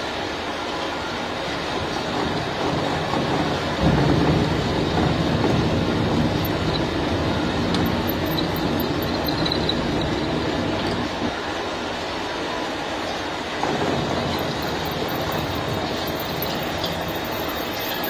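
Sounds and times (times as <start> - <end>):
milling cutter machining metal: 1.9 - 11.6, 13.6 - 18.0.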